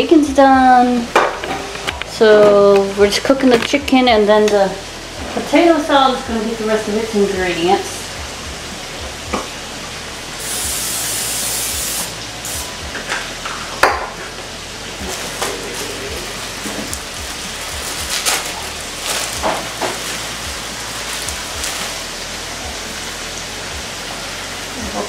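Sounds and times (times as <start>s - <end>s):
chicken sizzling in hot oil: 0.6s - 25.0s
loud hiss: 7.9s - 25.0s.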